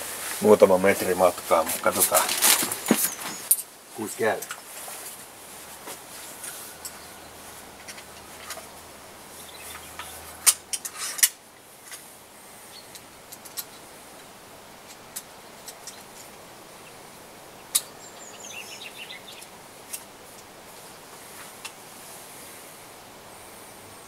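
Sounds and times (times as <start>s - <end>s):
bird chirping: 2.6s - 3.6s, 6.4s - 10.5s, 12.7s - 13.0s, 15.4s - 19.6s.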